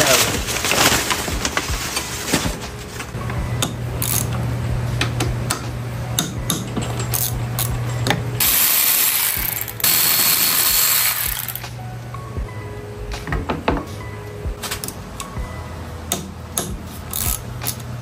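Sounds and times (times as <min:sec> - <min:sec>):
low steady hum: 0:00.2 - 0:18.0
ratchet clicks and metal clinks: 0:04.0 - 0:04.3, 0:06.2 - 0:07.7, 0:08.4 - 0:11.7, 0:16.1 - 0:17.9.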